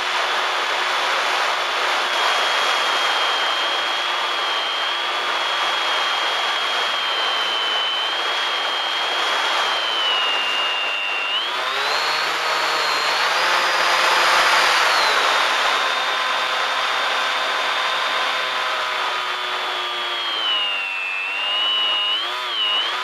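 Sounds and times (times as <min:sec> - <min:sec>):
model plane motor whining: 0:00.0 - 0:23.0.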